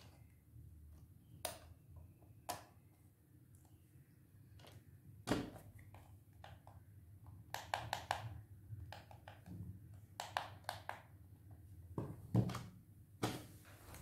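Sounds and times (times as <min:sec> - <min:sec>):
plastic clicks and taps: 0:07.4 - 0:11.1.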